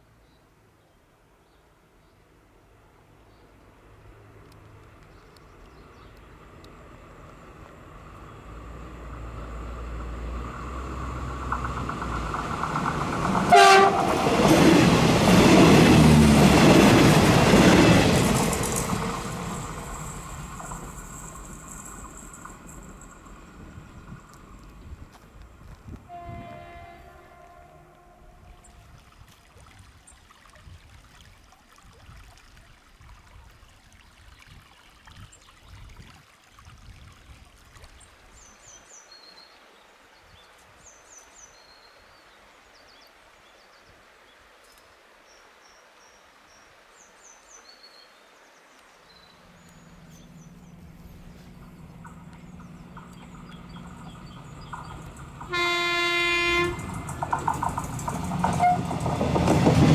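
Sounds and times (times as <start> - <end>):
faint stream: 0.0 - 59.9
train rumble: 6.4 - 28.5, 49.6 - 59.9
train horn blast: 13.4 - 14.6, 26.1 - 28.8, 55.4 - 57.2, 58.4 - 59.1
birds chirping: 49.1 - 59.0.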